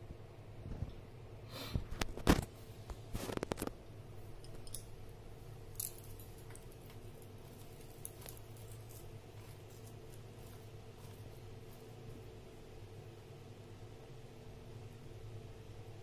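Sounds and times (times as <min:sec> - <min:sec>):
steady low hum: 0:00.0 - 0:16.0
vegetables clicking and rustling: 0:05.7 - 0:12.2.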